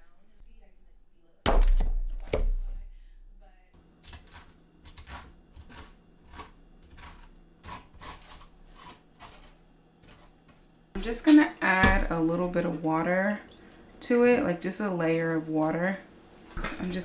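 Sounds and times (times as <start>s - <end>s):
spoon scraping squash: 4.0s - 11.4s.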